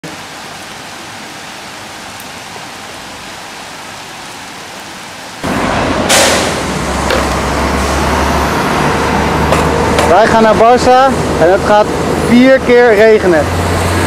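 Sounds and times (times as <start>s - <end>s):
rain on a rooftop: 0.0s - 14.0s
city street traffic: 5.4s - 14.0s.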